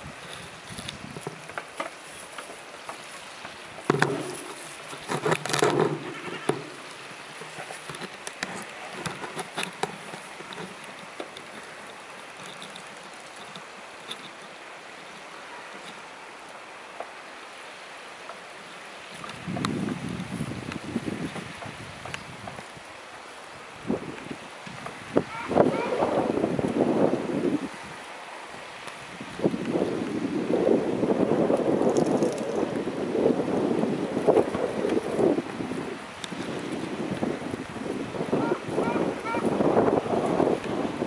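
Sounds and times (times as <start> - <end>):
wind buffeting microphone: 0.0 - 16.2, 18.8 - 41.0
falling snow hiss and patter: 0.0 - 41.0.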